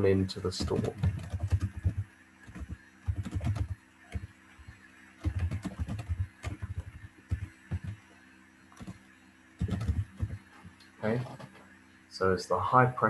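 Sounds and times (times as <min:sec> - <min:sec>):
typing on computer keyboard: 0:00.6 - 0:04.3, 0:05.2 - 0:08.0, 0:08.8 - 0:09.0, 0:09.6 - 0:10.4, 0:11.2 - 0:11.5.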